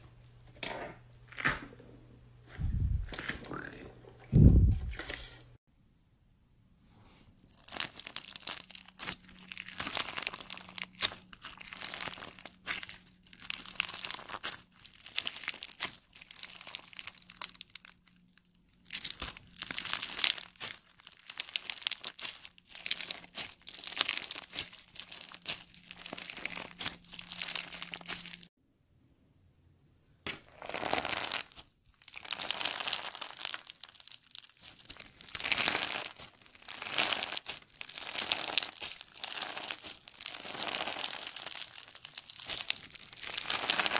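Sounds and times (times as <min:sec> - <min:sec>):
crunchy bead slime crackling: 0:07.4 - 0:28.5, 0:30.5 - 0:43.9.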